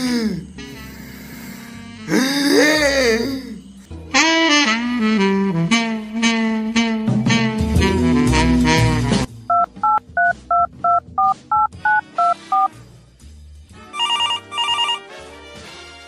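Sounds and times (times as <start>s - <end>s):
saxophone tune: 4.1s - 9.3s, 13.9s - 15.2s
touch-tone keypad beeps: 9.5s - 12.7s, 14.0s - 15.1s
electronic telephone ring: 13.9s - 15.1s.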